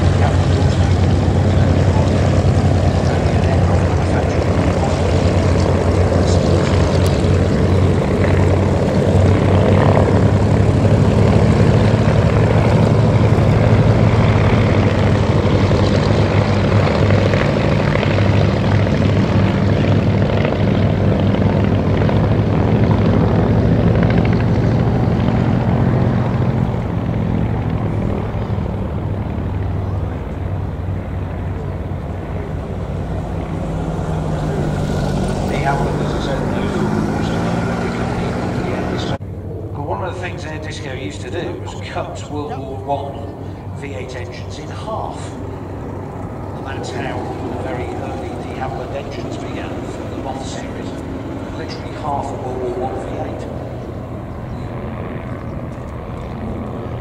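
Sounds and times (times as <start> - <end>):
biplane engines droning: 0.0 - 57.0.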